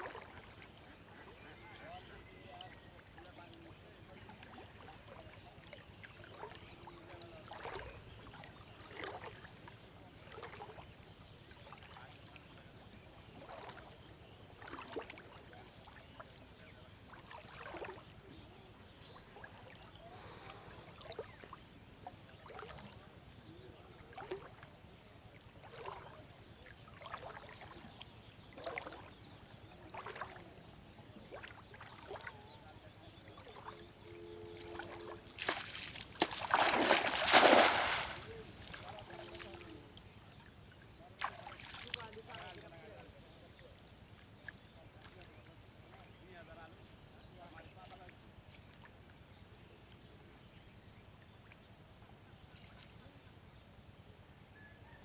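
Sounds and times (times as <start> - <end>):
water sloshing as legs wade: 0.0 - 0.7, 4.2 - 11.0, 13.4 - 14.0, 14.6 - 16.3, 17.1 - 18.0, 22.4 - 23.0, 24.1 - 24.6, 25.4 - 29.2, 29.9 - 30.6, 31.3 - 32.6, 33.3 - 39.8, 41.2 - 42.7.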